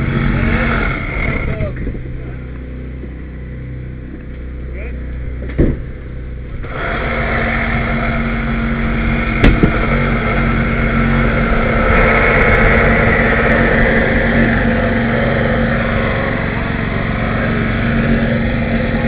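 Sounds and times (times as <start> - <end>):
power unit engine running: 0.0 - 19.0
sharp knock: 9.4 - 9.8.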